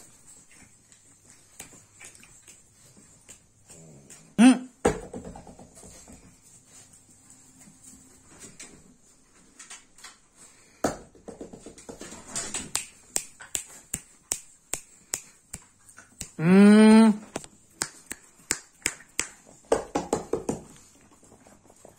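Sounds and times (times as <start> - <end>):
finger snaps: 12.7 - 16.4, 17.7 - 19.4.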